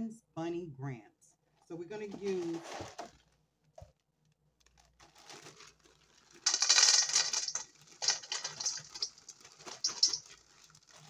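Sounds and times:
crackers rattling into metal bowl: 4.8s - 11.0s.

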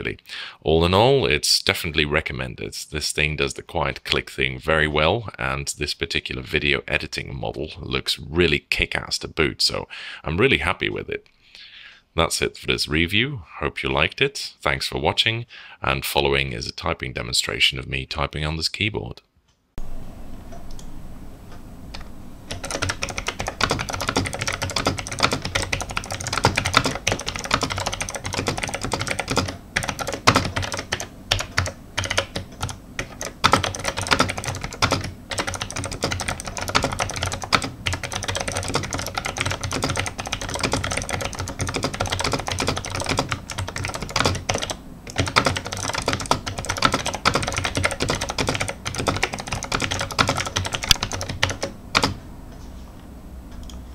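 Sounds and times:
clicky keyboard typing: 22.5s - 52.2s.

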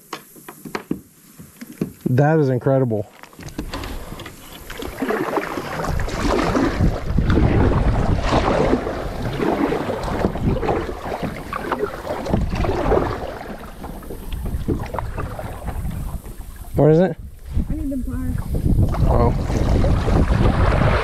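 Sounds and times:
paddle splashing in water: 3.1s - 21.0s
wind buffeting microphone: 3.5s - 21.0s.

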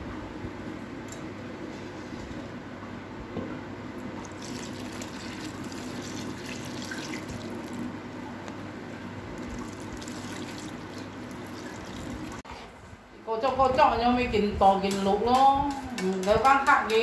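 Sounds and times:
liquid pouring into bowl: 4.2s - 7.9s, 9.3s - 12.4s.

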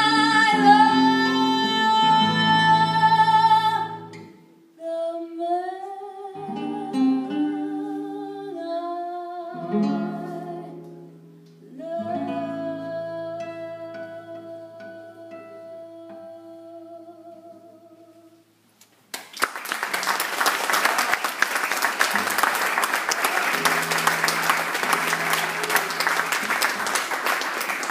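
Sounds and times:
person singing: 0.0s - 4.2s, 11.6s - 18.4s
classical guitar: 0.0s - 18.8s, 23.5s - 27.1s
audience applause: 19.2s - 27.9s.

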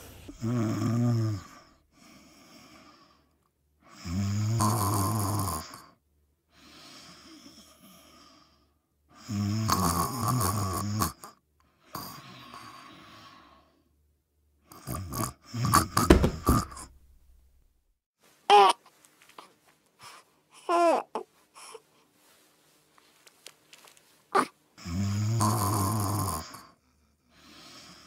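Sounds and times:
cartoon creature snoring: 0.0s - 1.4s, 4.0s - 5.9s, 9.3s - 11.2s, 24.8s - 26.8s.

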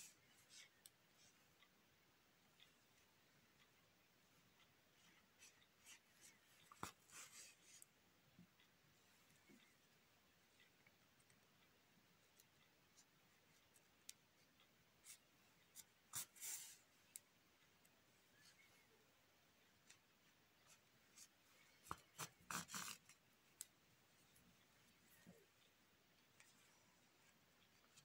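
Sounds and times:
hands rustling yarn: 5.0s - 7.9s, 19.8s - 25.6s.

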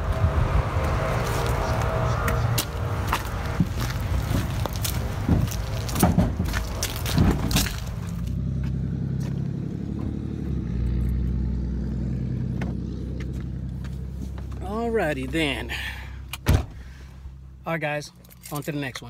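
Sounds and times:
vehicle engine idling: 0.0s - 18.4s
sharp knocks and clatter: 5.2s - 7.8s.

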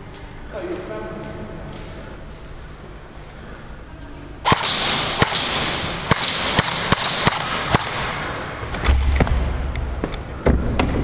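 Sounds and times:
airsoft guns firing: 4.4s - 9.6s.

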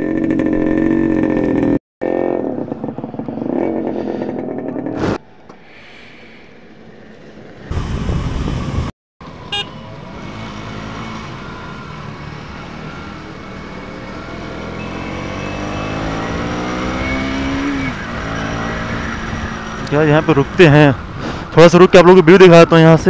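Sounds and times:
motorcycle engine accelerating: 0.0s - 5.2s, 10.0s - 21.0s
short beep: 14.7s - 16.1s.

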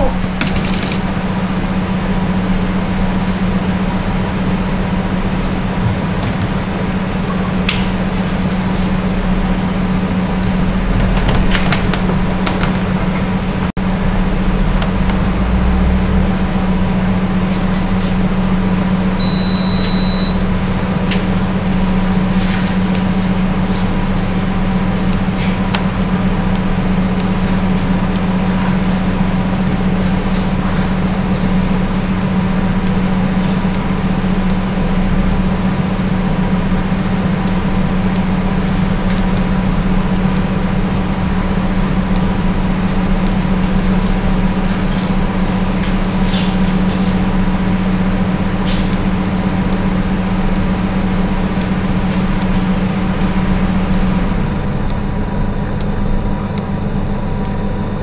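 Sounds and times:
electrical machine hum: 0.0s - 58.0s
high electronic beep: 19.2s - 20.4s, 32.4s - 32.9s.

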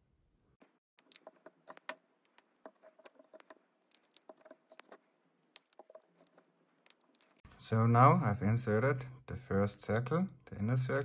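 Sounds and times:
magnets clicking on plastic: 1.0s - 7.4s.

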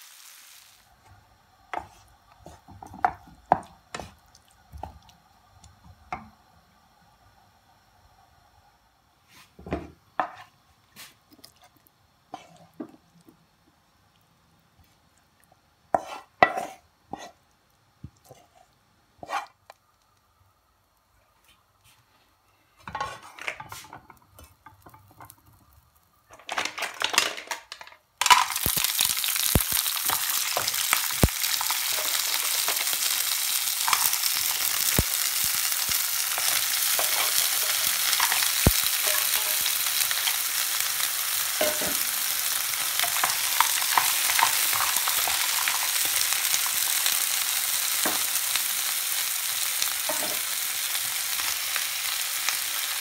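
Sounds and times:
loud steady sizzle: 0.0s - 53.0s.

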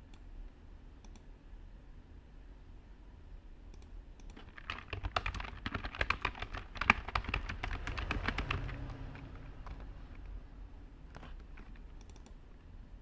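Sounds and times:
low background rumble: 0.2s - 13.0s
typing on computer keyboard: 3.8s - 10.3s, 11.1s - 12.4s.

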